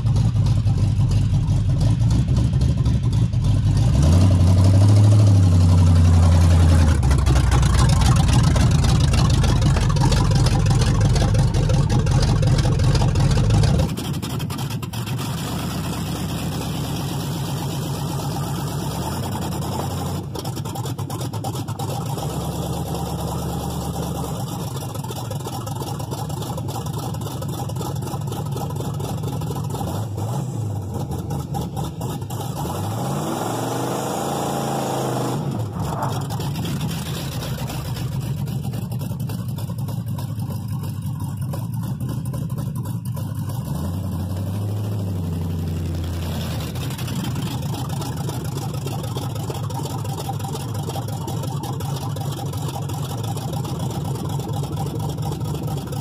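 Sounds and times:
engine revving hard: 0:03.8 - 0:07.4, 0:29.8 - 0:37.8.

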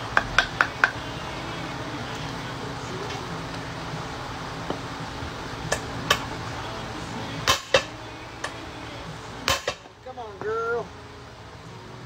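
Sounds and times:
hammer striking metal shaft: 0:00.0 - 0:01.0, 0:05.7 - 0:06.3, 0:07.4 - 0:08.6, 0:09.4 - 0:10.5.

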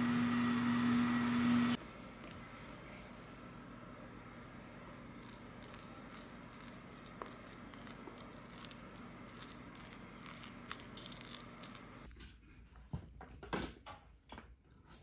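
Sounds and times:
spatula squishing rice in bowl: 0:05.2 - 0:12.1.

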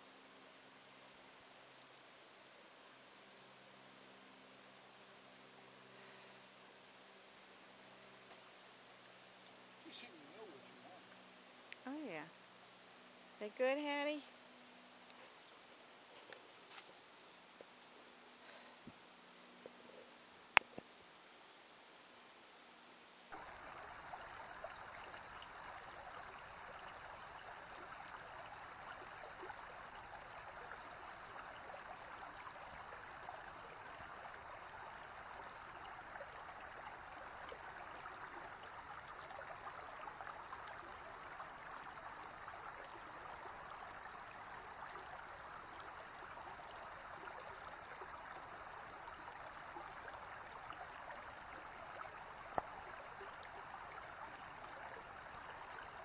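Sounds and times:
creek babbling over stones: 0:00.0 - 0:56.0.

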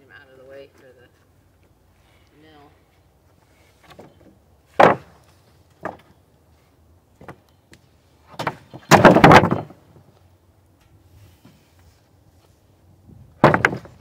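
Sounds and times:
wooden boards knocking: 0:03.9 - 0:05.2, 0:05.8 - 0:06.1, 0:08.3 - 0:09.8, 0:13.4 - 0:14.0
board scraping clatter: 0:08.3 - 0:09.8, 0:13.4 - 0:14.0.

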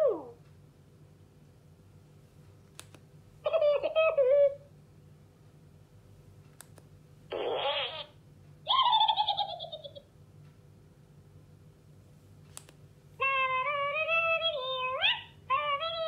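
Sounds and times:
squeaky chirping cartoon call: 0:07.3 - 0:10.0
toy switch clicks: 0:12.5 - 0:12.8.

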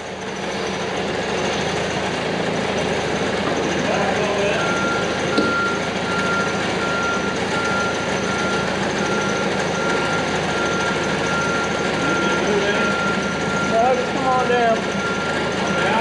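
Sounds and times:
loud steady background noise: 0:00.0 - 0:16.0
electronic warning beeper tone: 0:03.9 - 0:16.0.

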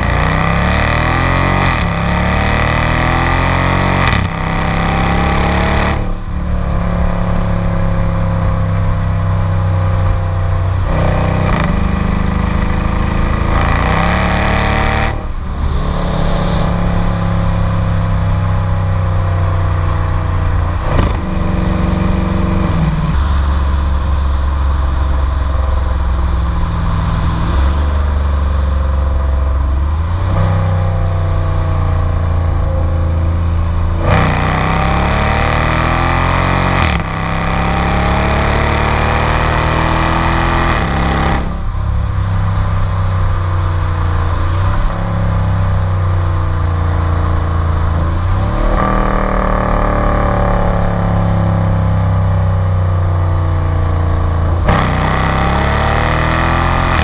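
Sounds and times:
car engine exhaust revving: 0:00.0 - 0:57.0.

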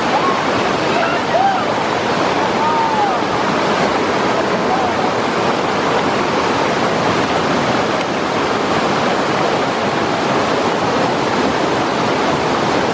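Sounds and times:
river rapids roaring: 0:00.0 - 0:12.9.

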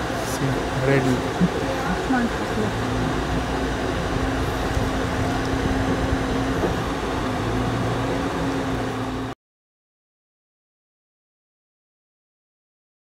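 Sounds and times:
boat motor humming: 0:00.0 - 0:09.4.

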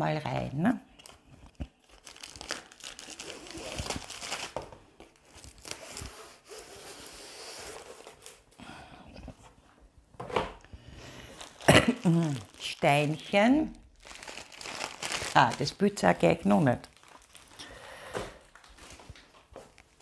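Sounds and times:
packaging rustling and crinkling: 0:01.0 - 0:08.5, 0:11.2 - 0:20.0.

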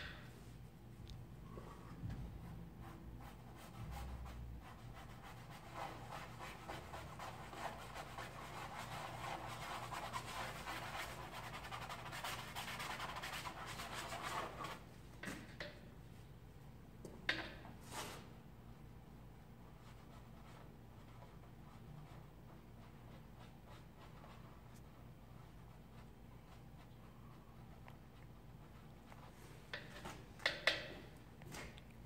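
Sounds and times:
paintbrush scrubbing on canvas: 0:02.7 - 0:14.8.

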